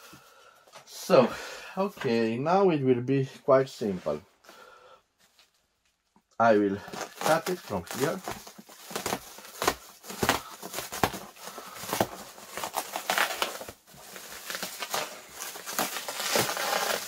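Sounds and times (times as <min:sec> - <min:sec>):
plastic wrap crinkling: 0:05.2 - 0:17.0.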